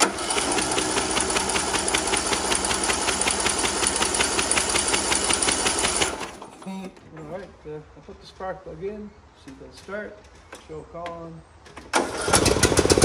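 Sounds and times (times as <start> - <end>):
electric starter cranking engine: 0.0 - 6.6, 11.9 - 13.0.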